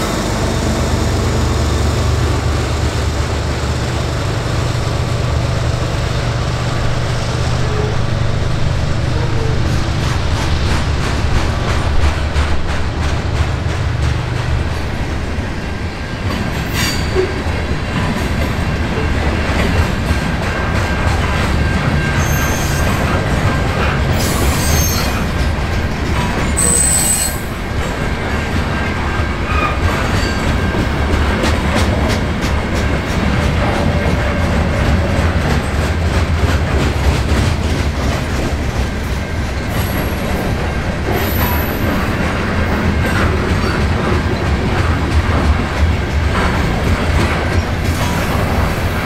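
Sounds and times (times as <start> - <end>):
steel wheels rumbling on rail: 0.0 - 49.0
clacking over rail joints: 9.1 - 15.2, 16.2 - 49.0
high-pitched wheel squeals: 22.2 - 23.1, 26.6 - 27.5.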